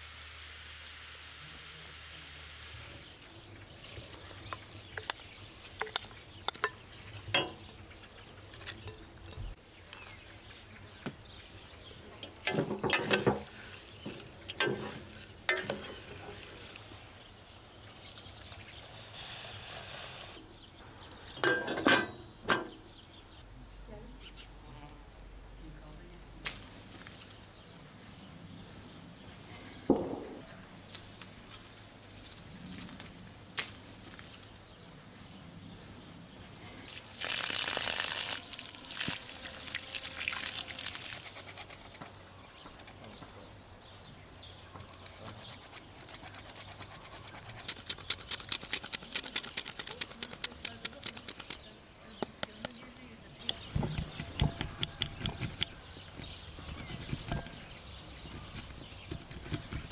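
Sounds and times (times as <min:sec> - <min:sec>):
lemon rasping on a grater: 0:53.7 - 0:57.6, 0:58.3 - 0:59.9.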